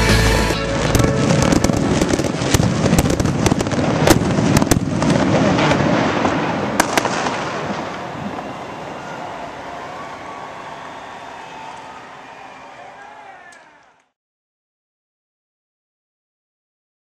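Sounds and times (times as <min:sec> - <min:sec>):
fireworks cracking and popping: 0:00.0 - 0:08.7.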